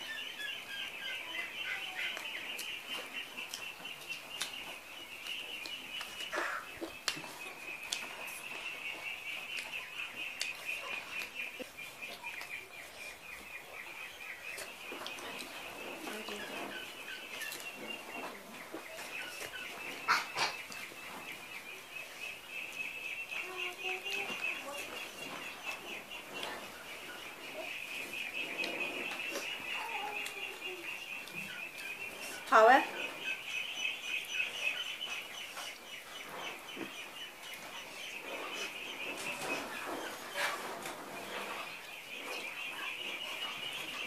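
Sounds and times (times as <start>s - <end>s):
ducks calling: 0.0s - 21.7s
birds chirping: 0.0s - 44.0s
chickens clucking: 0.0s - 44.0s.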